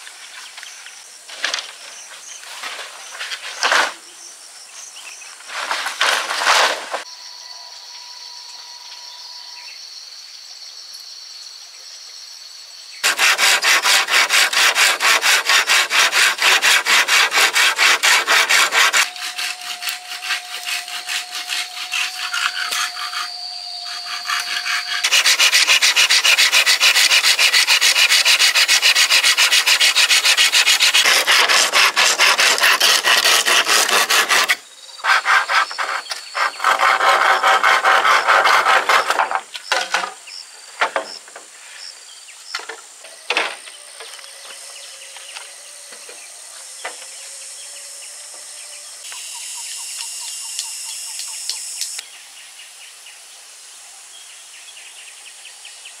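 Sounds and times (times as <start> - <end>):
hand tool sawing bamboo: 13.0 - 39.8.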